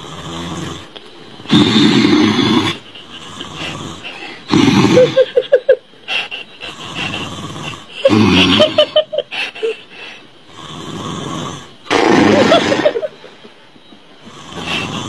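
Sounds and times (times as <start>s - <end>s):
man snoring loudly: 0.0s - 5.5s, 6.6s - 9.2s, 10.5s - 13.1s, 14.2s - 15.0s.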